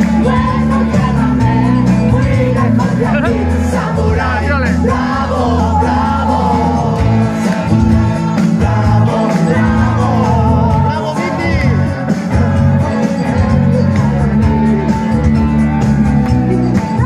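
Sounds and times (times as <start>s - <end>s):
woman singing: 0.0s - 7.2s
live band music: 0.0s - 17.0s.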